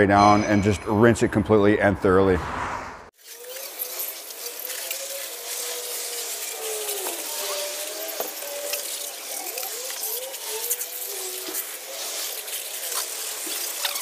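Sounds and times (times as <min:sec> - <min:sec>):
hose spray hissing on engine: 0:03.1 - 0:14.0.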